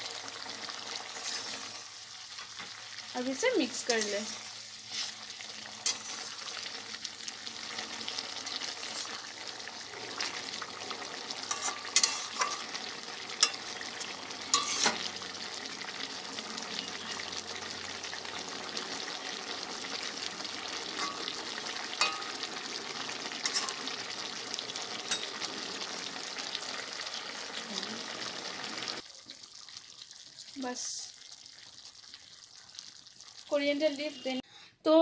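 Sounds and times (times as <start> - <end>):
curry sizzling in a metal pan: 0.0 - 34.4
spatula scraping and tapping pan: 5.8 - 6.3, 11.4 - 12.8, 13.4 - 15.1, 21.0 - 22.5, 23.4 - 23.9, 25.1 - 25.4.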